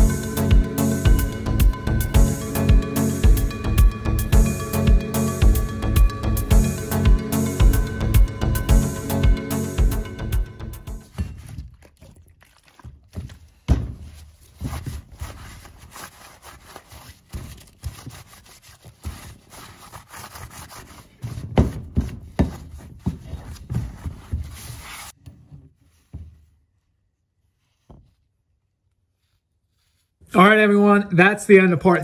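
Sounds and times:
gloved hand scrubbing metal: 10.9 - 25.2.

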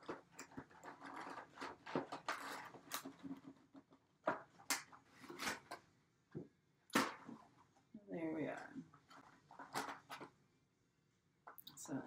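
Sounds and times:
sharp scrapes and knocks: 0.0 - 5.8.

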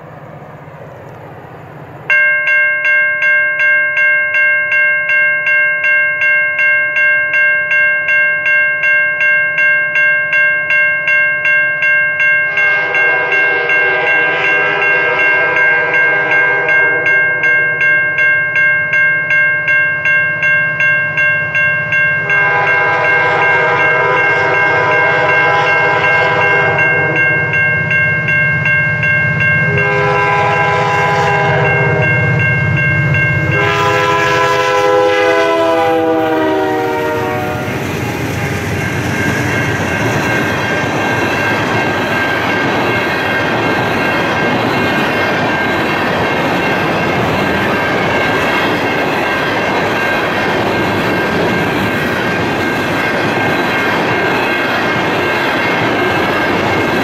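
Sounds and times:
bell ringing: 2.1 - 57.0
locomotive air horn blasts: 12.5 - 17.1, 22.3 - 27.4, 29.7 - 32.3, 33.5 - 37.8
hopper cars rumbling on rails: 20.8 - 57.0.

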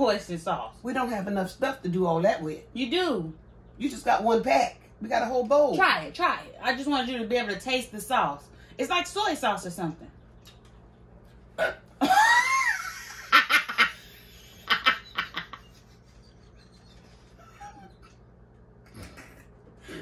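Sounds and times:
woman laughing: 12.0 - 18.2.

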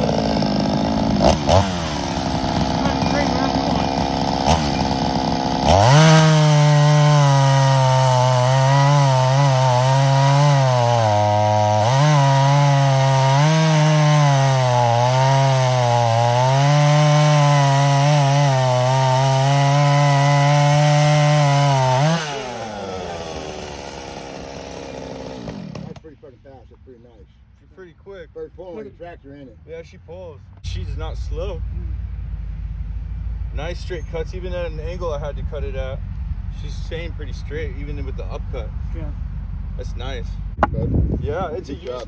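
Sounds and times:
chainsaw cutting through log: 0.0 - 26.0.

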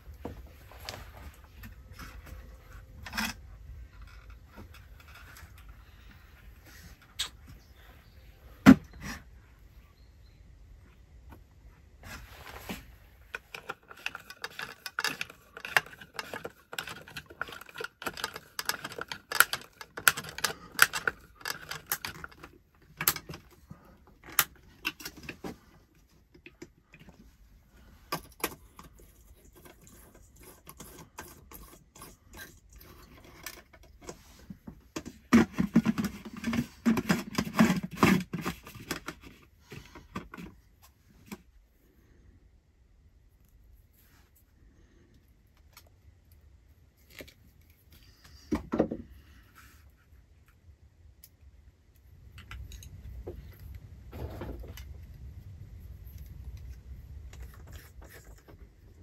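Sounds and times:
rubbing and scraping: 11.8 - 41.9, 53.4 - 59.0.

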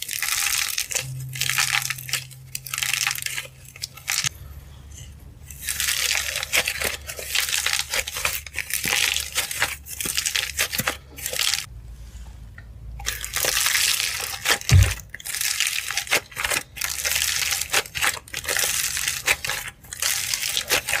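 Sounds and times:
dry clay crackling and crunching: 0.0 - 11.7, 13.0 - 21.0
low thump: 14.7 - 15.0.

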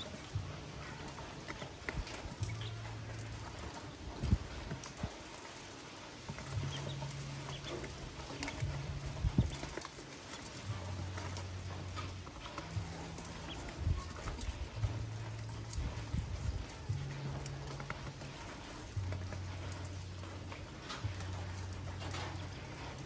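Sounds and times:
low hum: 0.0 - 5.1, 6.2 - 23.0
ducklings peeping: 0.0 - 5.4, 6.2 - 16.5.

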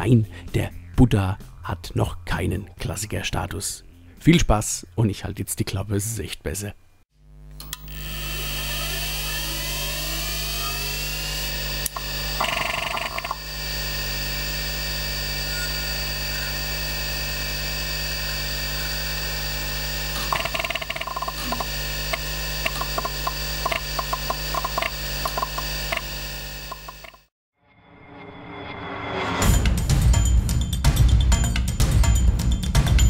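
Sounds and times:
hard disk whine and hum: 7.2 - 27.3
disk head seek clicks and buzzes: 11.7 - 13.5, 20.0 - 27.2.

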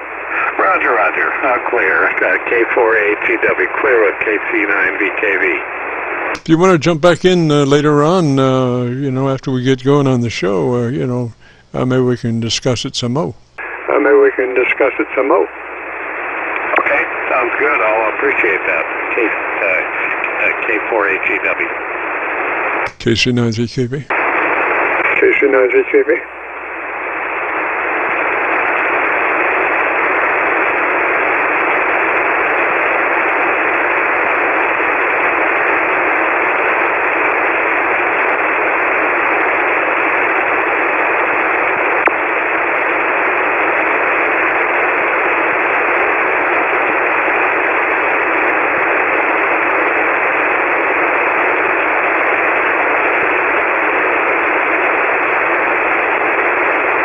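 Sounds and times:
radio receiver hiss: 0.0 - 57.0.

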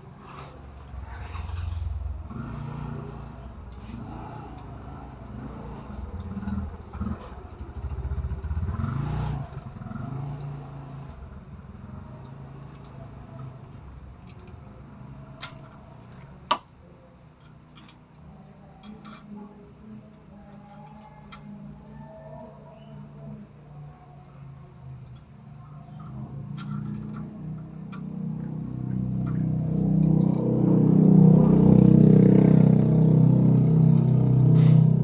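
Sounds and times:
engine running: 0.0 - 16.4, 24.4 - 35.0
hand tools tapping on metal: 20.1 - 22.0, 25.9 - 28.2.

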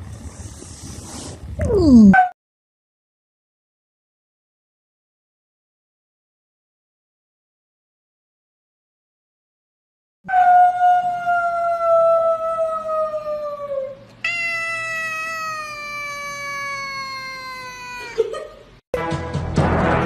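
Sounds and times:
cat meowing: 14.2 - 18.2.

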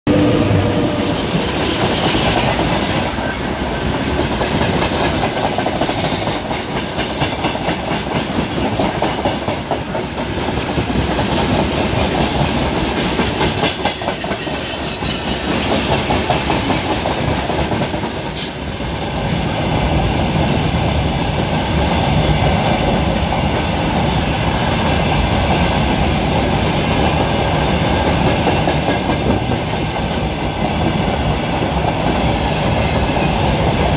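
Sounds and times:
train wheels clacking over rail joints: 1.1 - 18.6.

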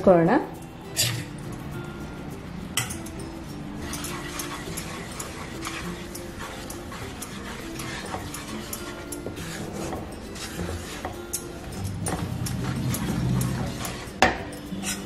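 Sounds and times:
spatula scraping a pan: 0.9 - 1.4, 3.8 - 15.0.

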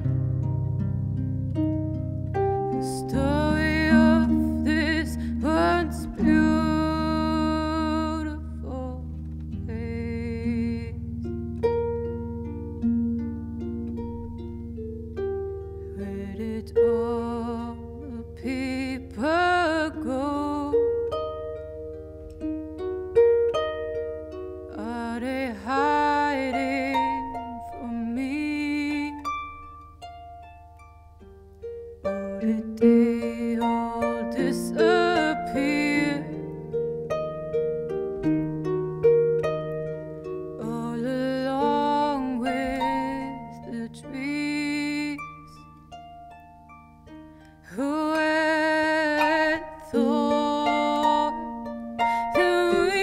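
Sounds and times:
harp playing plucked notes: 0.0 - 53.0
sustained wavering melody line: 0.0 - 53.0
woman singing with vibrato: 2.8 - 11.0, 15.9 - 21.0, 24.7 - 29.3, 32.1 - 36.6, 40.6 - 45.5, 47.6 - 53.0.

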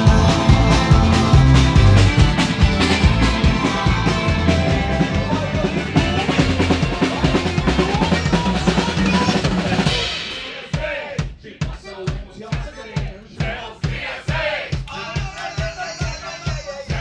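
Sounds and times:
live rock band playing: 0.0 - 10.6
drum kit beat: 0.0 - 17.0.

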